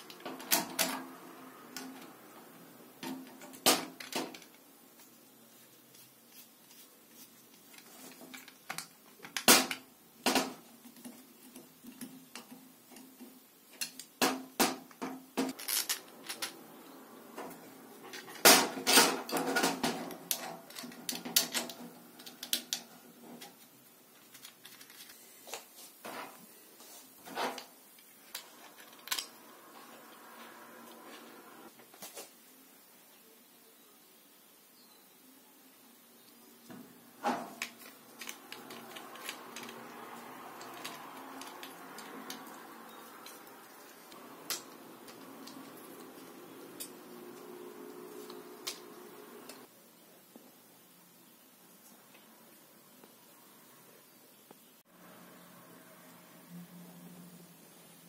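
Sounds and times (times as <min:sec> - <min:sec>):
plastic parts and screws clattering: 0:03.0 - 0:04.6, 0:07.6 - 0:16.6, 0:18.1 - 0:25.2, 0:27.2 - 0:29.4, 0:37.2 - 0:47.0
parts rattling: 0:13.8 - 0:16.7, 0:37.2 - 0:49.7.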